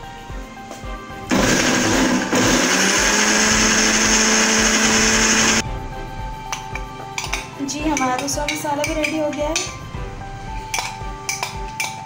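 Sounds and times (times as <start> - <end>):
electric blender whirring: 1.3 - 5.6.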